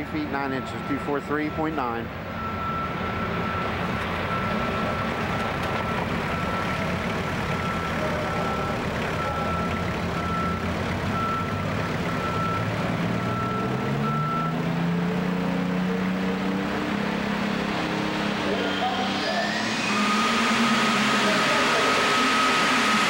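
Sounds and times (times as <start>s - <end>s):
reversing alarm beeping: 0.0s - 6.9s, 7.5s - 14.6s, 18.6s - 23.0s
tractor engine idling and revving: 0.0s - 23.0s.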